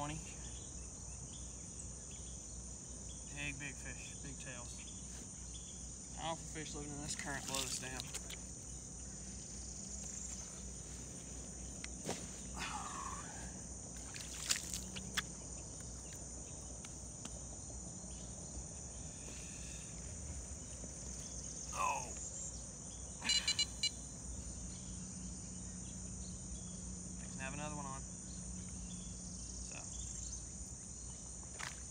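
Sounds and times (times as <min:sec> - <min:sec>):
insects chorus: 0:00.0 - 0:31.9
short rising calls: 0:23.2 - 0:24.0.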